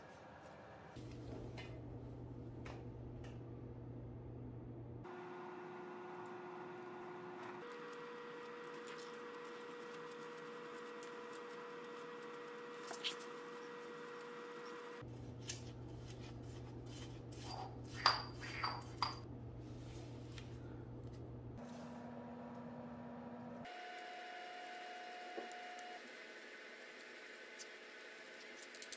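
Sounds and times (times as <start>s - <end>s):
steady hum: 1.0s - 18.0s.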